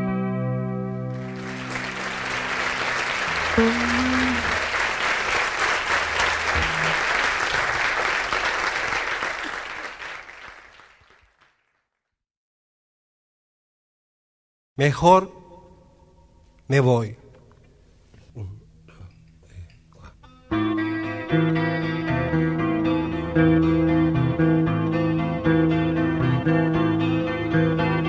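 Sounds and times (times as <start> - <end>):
audience applauding: 1.1 - 11.8.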